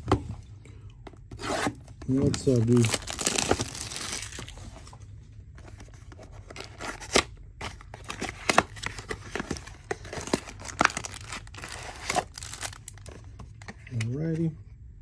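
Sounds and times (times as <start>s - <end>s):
cardboard and wrapper rustling: 1.3s - 14.0s.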